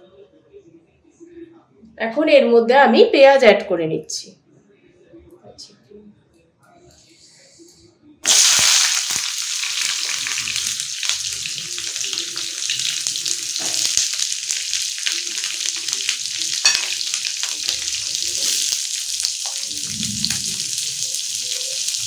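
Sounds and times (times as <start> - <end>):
onions sizzling in hot oil: 8.2 - 22.0.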